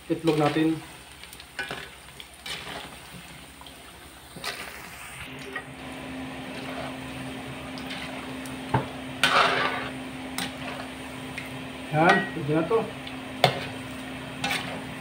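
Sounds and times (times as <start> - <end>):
eggs sizzling in hot oil: 0.0 - 15.0
metal ladle scraping wok: 1.6 - 3.0, 6.5 - 7.0, 9.2 - 10.9, 14.4 - 15.0
steady low hum: 5.2 - 15.0.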